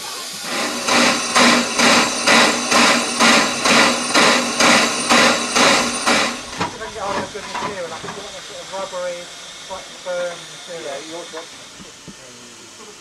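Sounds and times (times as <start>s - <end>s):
steam locomotive chuffing: 0.0s - 13.0s.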